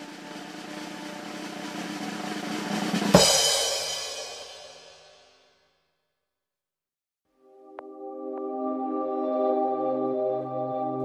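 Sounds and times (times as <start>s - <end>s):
snare drum roll: 0.0s - 5.4s
cymbal crash: 0.0s - 5.5s
low drum hit: 3.2s - 4.4s.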